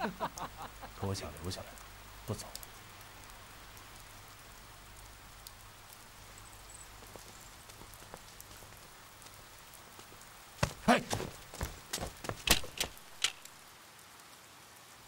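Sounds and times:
faint steady hiss: 0.0 - 15.0
soft ticks: 1.8 - 4.0.

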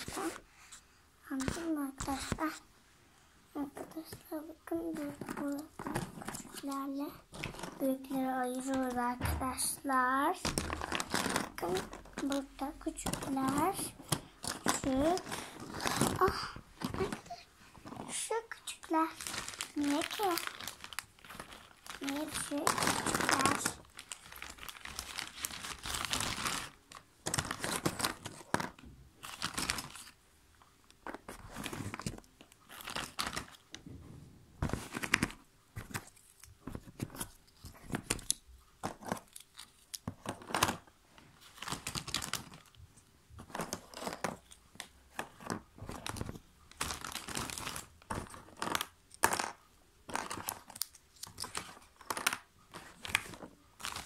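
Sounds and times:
plastic bag crinkling: 3.6 - 30.2, 30.9 - 33.9, 34.6 - 42.8, 43.4 - 54.0
puzzle pieces rummaged: 4.3 - 30.1, 43.4 - 54.0.

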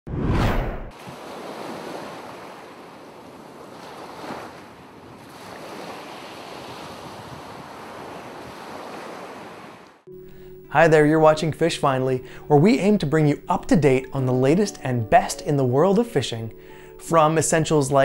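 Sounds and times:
ocean waves: 0.9 - 10.6.

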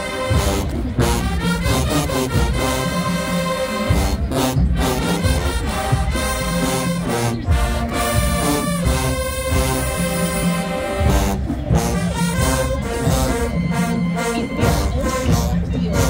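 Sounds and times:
drums: 0.0 - 16.0
marching band brass chords: 0.0 - 16.0.

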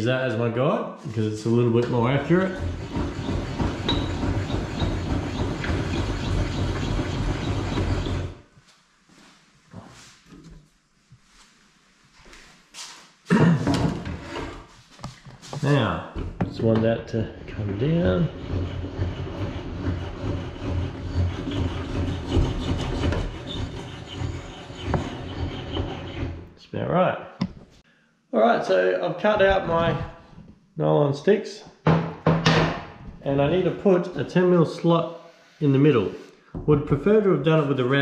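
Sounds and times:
saw mechanism rubbing and grinding: 1.5 - 8.4, 17.1 - 26.5, 33.5 - 36.4.

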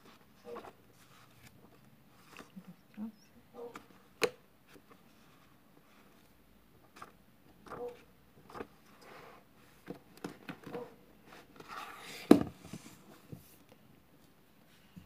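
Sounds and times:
book pages turning: 0.0 - 2.6, 4.6 - 13.6
book thumping on wooden table: 12.3 - 12.6.

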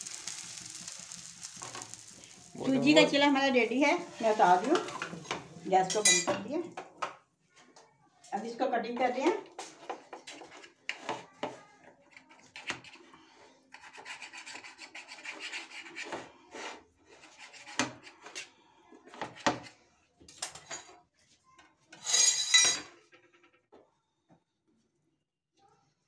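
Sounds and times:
knife scraping across plate: 13.7 - 18.5.

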